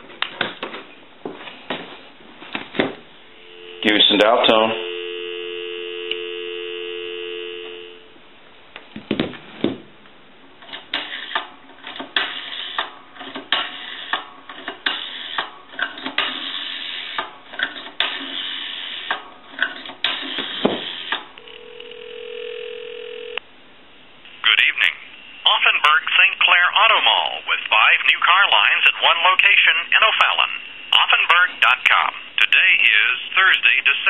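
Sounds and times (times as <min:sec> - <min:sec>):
steady telephone tone: 0:03.3 - 0:08.2, 0:21.4 - 0:23.4
telephone dial tone: 0:03.4 - 0:08.1, 0:21.4 - 0:23.4.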